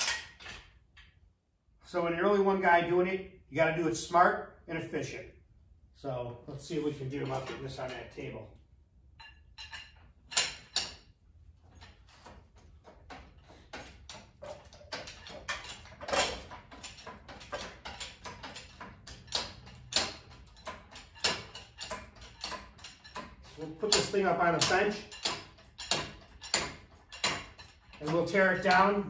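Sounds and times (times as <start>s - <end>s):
hydraulic hoist clicks and knocks: 0.0s - 1.2s, 9.6s - 29.0s.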